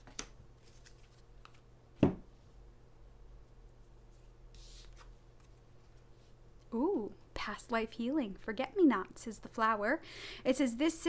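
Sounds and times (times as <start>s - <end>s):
cards clicking: 0.0s - 1.6s
cards rustling: 0.0s - 1.6s
low electrical hum: 0.0s - 11.0s.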